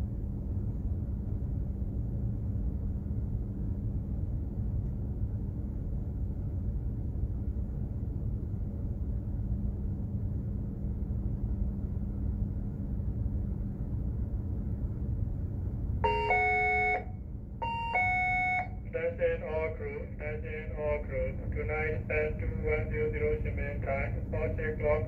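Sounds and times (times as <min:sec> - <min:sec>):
ship engine rumble and hum: 0:00.0 - 0:25.0
two-note electronic chime: 0:16.0 - 0:17.0, 0:17.6 - 0:18.7.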